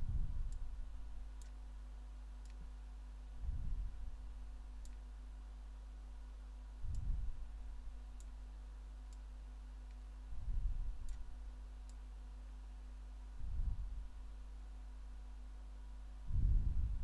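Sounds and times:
low electrical hum: 0:00.0 - 0:17.0
faint computer mouse clicks: 0:01.4 - 0:01.6, 0:02.4 - 0:02.8, 0:04.8 - 0:05.1, 0:11.0 - 0:12.1.

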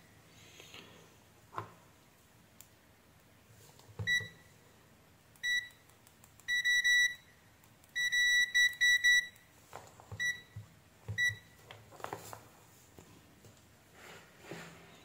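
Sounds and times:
multimeter beeping: 0:04.0 - 0:04.5, 0:05.4 - 0:05.8, 0:06.4 - 0:09.5, 0:10.2 - 0:10.6, 0:11.2 - 0:11.6.

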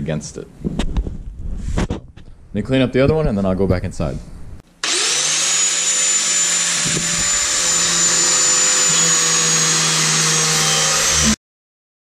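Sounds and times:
angle grinder whine: 0:04.8 - 0:11.4.

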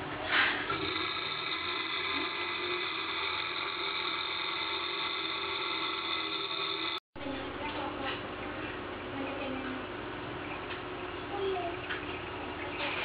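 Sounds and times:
electric motor whining: 0:00.7 - 0:07.0.

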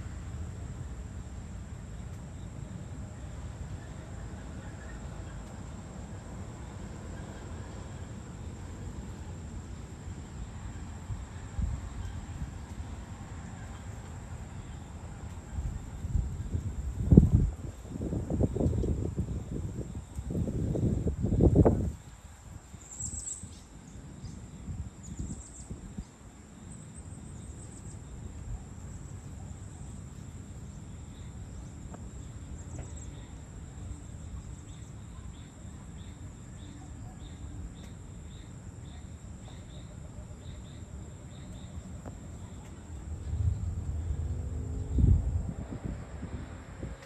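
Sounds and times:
insects droning: 0:00.0 - 0:47.0
low rumble: 0:42.8 - 0:47.0.

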